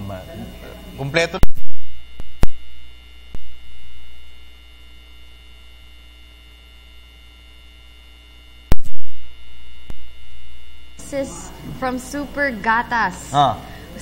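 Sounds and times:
electrical mains hum: 0:00.0 - 0:14.0
sharp click: 0:02.2 - 0:02.6.

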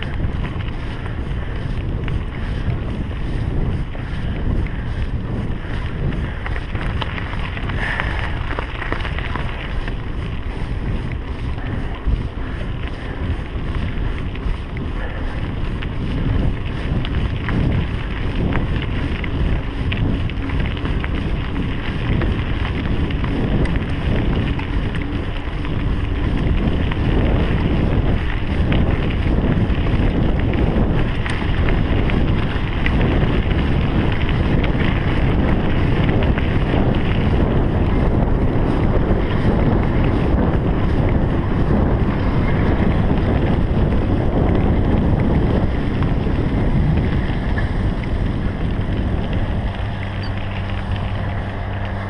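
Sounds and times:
bike rattles and knocks: 0:00.0 - 0:52.0
tyres crunching on dirt: 0:00.0 - 0:52.0
wind buffeting microphone: 0:00.0 - 0:52.0.

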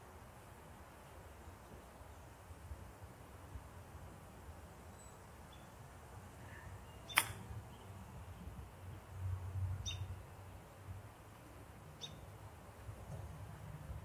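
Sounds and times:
faint bird chirps: 0:04.9 - 0:05.8, 0:06.4 - 0:08.3, 0:09.8 - 0:10.2, 0:12.0 - 0:12.3.

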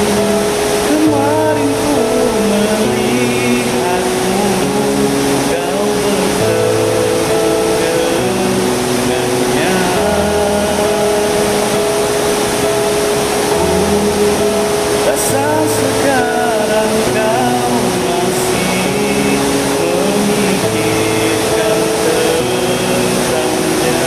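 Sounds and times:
held keyboard chords: 0:00.0 - 0:24.0
man singing: 0:00.0 - 0:24.0.

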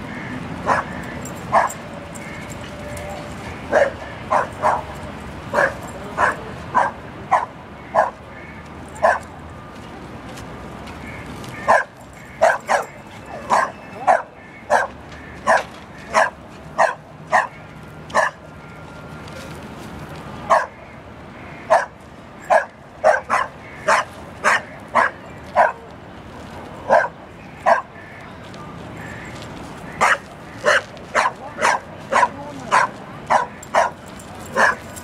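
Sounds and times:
dog barking: 0:00.6 - 0:01.8, 0:03.7 - 0:04.9, 0:05.5 - 0:08.2, 0:09.0 - 0:09.2, 0:11.7 - 0:18.4, 0:20.5 - 0:20.8, 0:21.7 - 0:21.9, 0:22.5 - 0:25.8, 0:26.9 - 0:27.9, 0:30.0 - 0:34.9.

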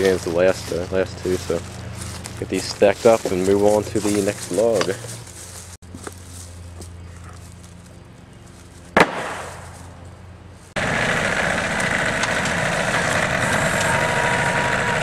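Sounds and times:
tractor engine running: 0:00.0 - 0:15.0.

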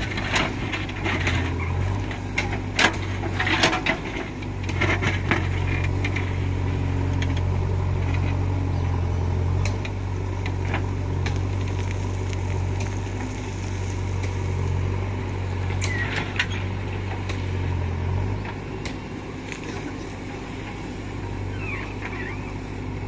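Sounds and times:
diesel engine running: 0:00.0 - 0:23.0
sharp squeal and knock: 0:15.8 - 0:16.7, 0:21.4 - 0:22.6.

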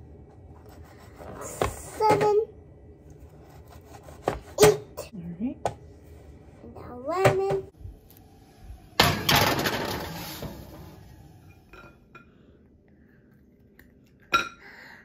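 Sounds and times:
metal baking sheet clattering: 0:09.0 - 0:10.9.

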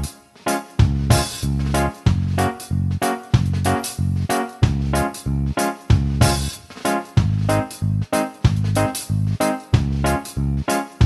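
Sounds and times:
instrumental music with beat: 0:00.0 - 0:11.0.

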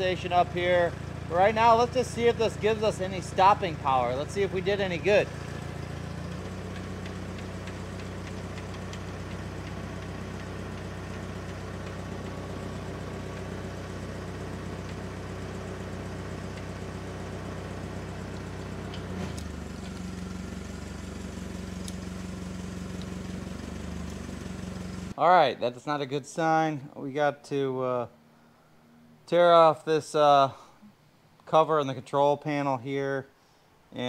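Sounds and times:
forklift engine running: 0:00.0 - 0:25.2.

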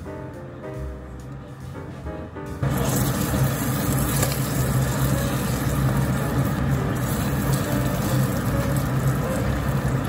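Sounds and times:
ribs sizzling in a frying pan: 0:02.7 - 0:10.0.

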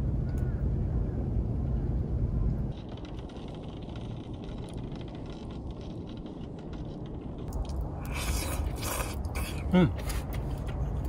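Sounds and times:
stove fire rumbling: 0:00.0 - 0:11.0
fire crackles: 0:01.4 - 0:11.0
noodles being slurped: 0:08.0 - 0:10.7.

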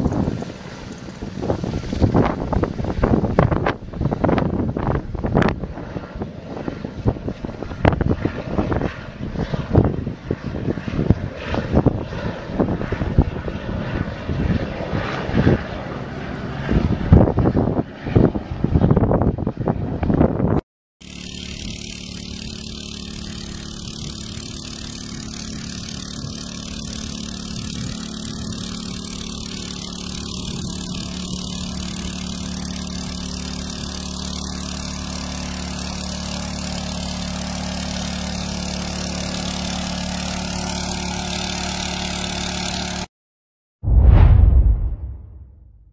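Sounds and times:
engine drone: 0:21.0 - 0:43.1, 0:43.8 - 0:45.9
loud low burst: 0:43.8 - 0:45.9.

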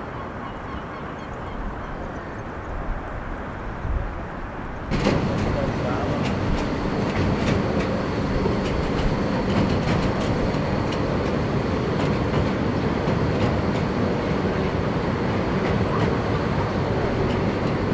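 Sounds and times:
train rumbling over bridge: 0:00.0 - 0:17.9
wheels clicking over rail joints: 0:04.9 - 0:14.8.

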